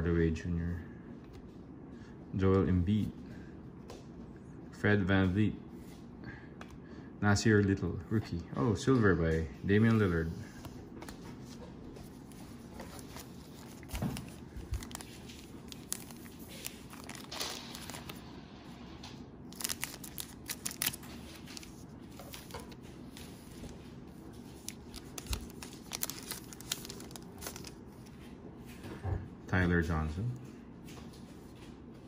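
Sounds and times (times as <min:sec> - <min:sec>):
plastic wrapper tearing and crinkling: 0:12.9 - 0:18.2, 0:19.5 - 0:22.8, 0:24.6 - 0:27.8.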